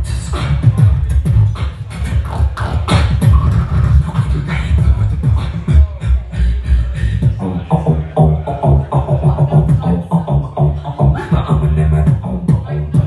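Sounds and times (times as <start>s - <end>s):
beatboxing deep bass: 0.0s - 13.0s
beatboxing percussive clicks: 0.0s - 13.0s.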